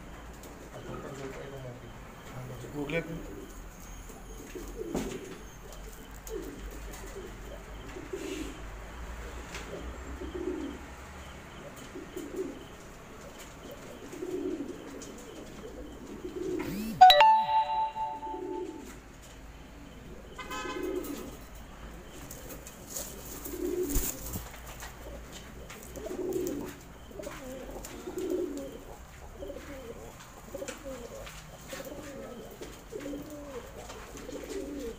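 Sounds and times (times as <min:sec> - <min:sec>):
pigeons cooing: 0:02.5 - 0:16.8, 0:19.8 - 0:34.9
bell-like chime: 0:17.0 - 0:18.8.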